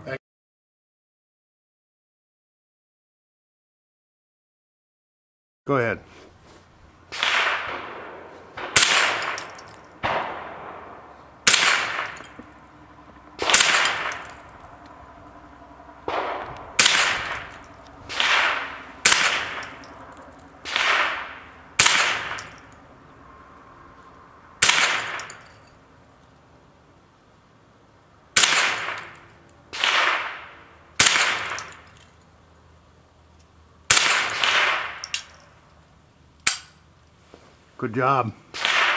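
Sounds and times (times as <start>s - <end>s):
rifle shots with ringing tail: 7.1s - 23.0s, 24.6s - 25.8s, 28.4s - 32.0s, 33.9s - 35.6s, 38.5s - 38.9s.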